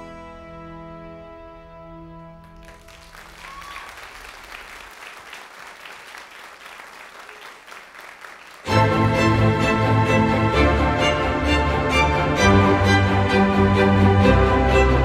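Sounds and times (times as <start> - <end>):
sustained music: 0.0 - 3.2, 8.7 - 15.0
audience applauding: 2.4 - 8.9
loud string music: 8.7 - 15.0.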